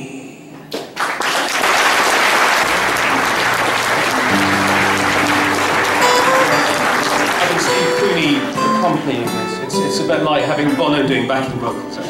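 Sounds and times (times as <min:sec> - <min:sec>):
audience applause: 0:01.0 - 0:09.7.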